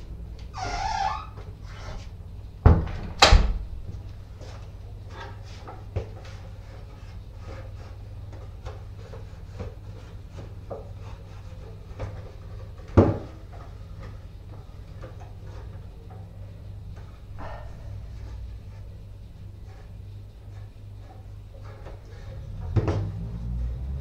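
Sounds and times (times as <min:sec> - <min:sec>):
wooden stool knocks and scrapes: 0:08.7 - 0:13.6, 0:21.0 - 0:23.4.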